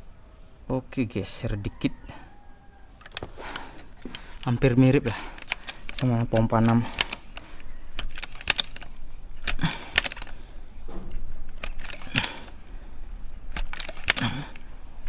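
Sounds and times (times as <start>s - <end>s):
air rifle pump clacking: 3.0s - 14.8s.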